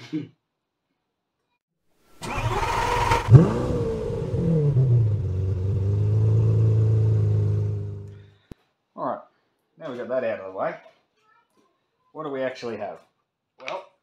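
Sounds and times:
engine cranking: 0:02.2 - 0:06.0
engine revving and idling: 0:02.2 - 0:08.2.

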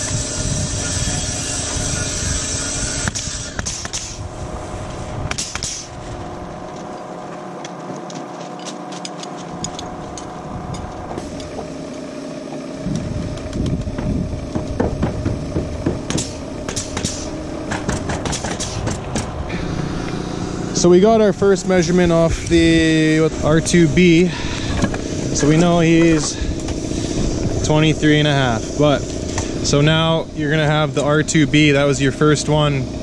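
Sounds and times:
mechanical hum: 0:00.0 - 0:33.0
low rumble: 0:12.8 - 0:31.6.

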